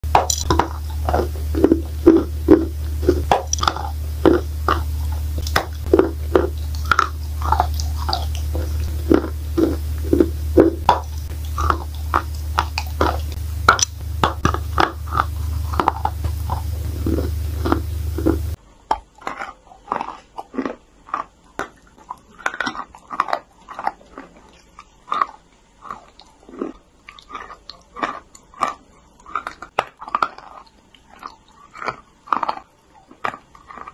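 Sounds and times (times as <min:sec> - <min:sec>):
steady low hum: 0:00.0 - 0:18.7
chalk crunching being chewed: 0:00.0 - 0:33.9.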